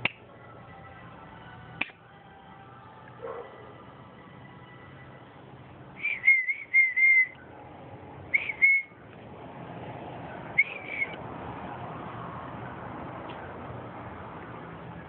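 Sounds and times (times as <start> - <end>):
short whistled notes: 6.0 - 7.4, 8.3 - 9.0, 10.6 - 11.2.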